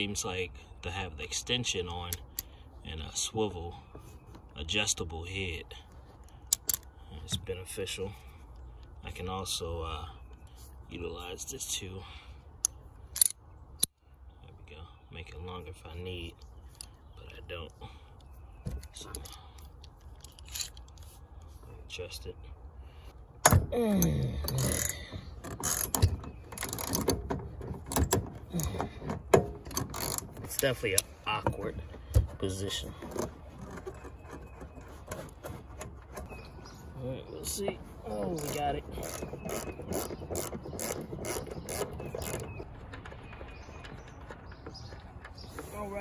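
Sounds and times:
short creak: 24.0s - 27.2s, 29.6s - 30.6s.

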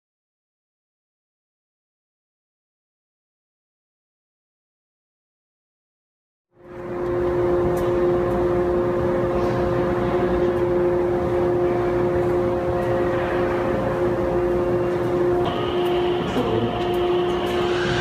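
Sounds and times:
droning hum with held tones: 6.6s - 18.0s
rushing noise: 12.4s - 18.0s.

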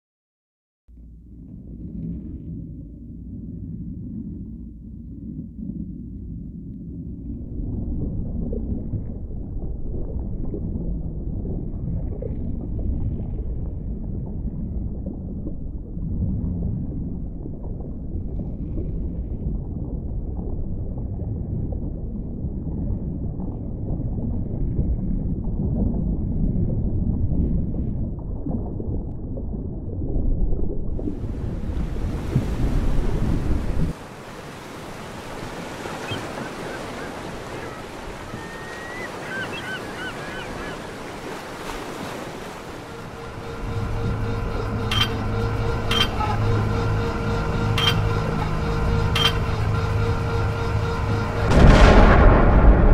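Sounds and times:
muffled underwater rumble: 0.9s - 52.9s
rush of waves and wind: 30.9s - 52.9s.

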